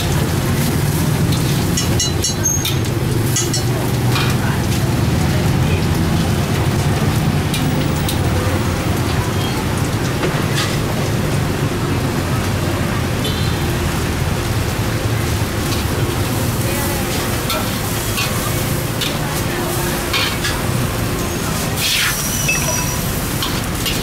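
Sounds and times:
vegetables sizzling in a wok: 0:00.0 - 0:24.0
metal utensils clinking on wok: 0:01.2 - 0:04.8, 0:17.0 - 0:20.8, 0:21.8 - 0:24.0.

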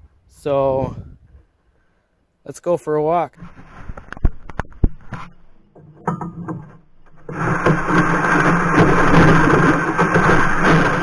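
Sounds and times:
gear knocking and rattling: 0:05.7 - 0:11.0
sled scraping over ice: 0:06.4 - 0:11.0.

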